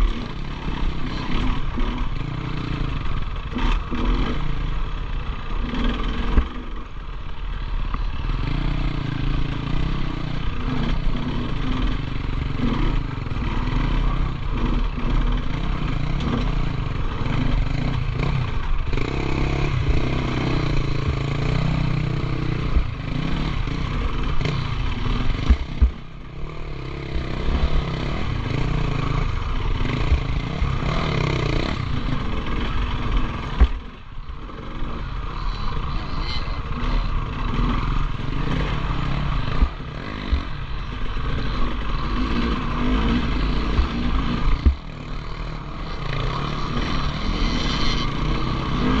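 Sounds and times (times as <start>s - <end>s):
motorcycle engine revving: 0.0s - 49.0s.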